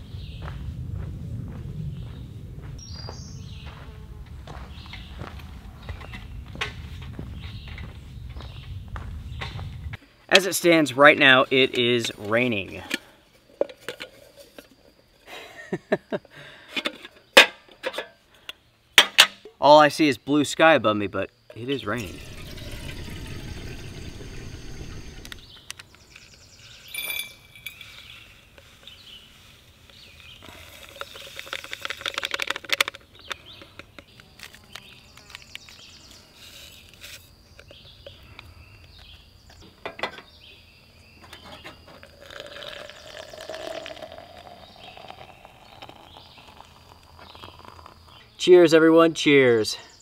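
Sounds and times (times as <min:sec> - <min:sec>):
hot water poured into tumbler: 0:21.9 - 0:25.4, 0:42.0 - 0:48.2
camp cookware clinking: 0:26.8 - 0:28.2
water poured into kettle: 0:42.0 - 0:48.0.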